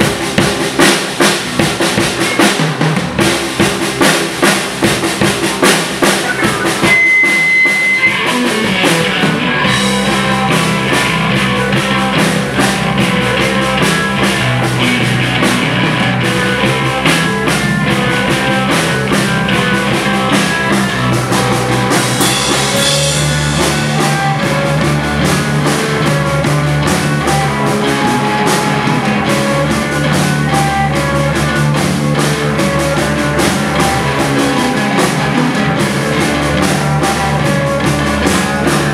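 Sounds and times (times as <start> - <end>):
loud live rock band: 0.0 - 38.9
high-pitched whine: 6.2 - 10.0.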